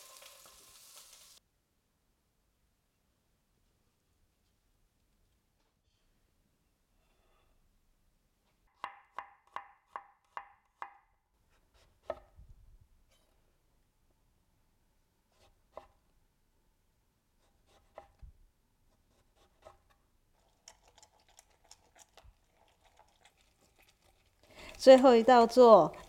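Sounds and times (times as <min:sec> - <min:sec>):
knife slicing a lemon: 0:17.4 - 0:18.2, 0:18.9 - 0:20.0.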